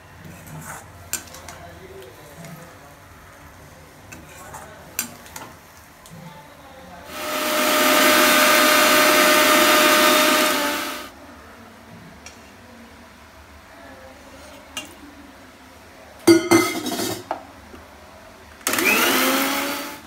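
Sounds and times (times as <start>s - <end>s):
mixer grinder whirring: 7.1s - 11.1s, 18.6s - 20.0s
ladle clinking against pan: 16.3s - 17.3s.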